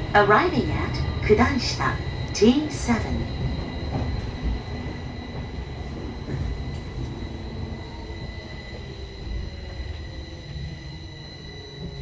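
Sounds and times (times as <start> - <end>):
train wheels rumbling on rails: 0.0 - 12.0
high whine of traction motor: 3.3 - 12.0.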